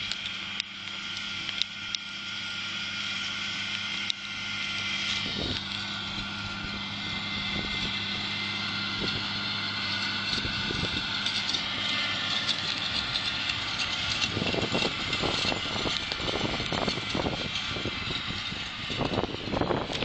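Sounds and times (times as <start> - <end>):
forage wagon whine: 0.0 - 20.0
tractor engine running: 0.0 - 20.0
wagon clattering and rattling: 5.1 - 20.0.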